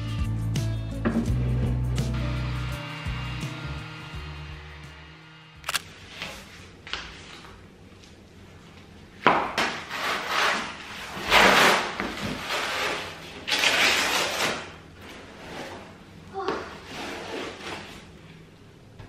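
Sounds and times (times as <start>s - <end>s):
cardboard tearing: 9.9s - 14.8s.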